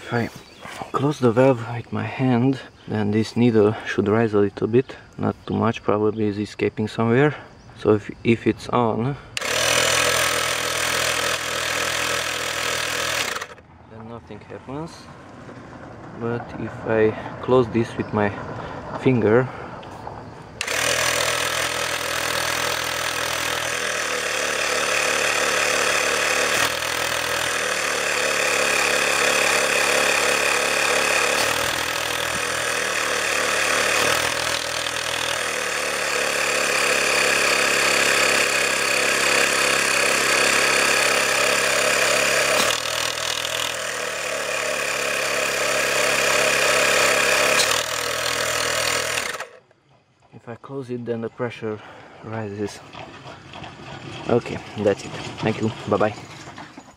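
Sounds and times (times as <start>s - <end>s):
portable tyre compressor running: 0.0s - 4.0s, 9.1s - 13.7s, 19.5s - 50.2s.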